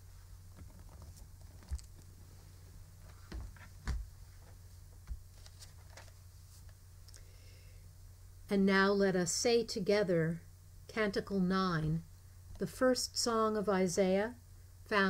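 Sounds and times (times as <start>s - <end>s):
low steady hum: 0.0s - 15.0s
faint knocks and rustles: 0.1s - 6.8s.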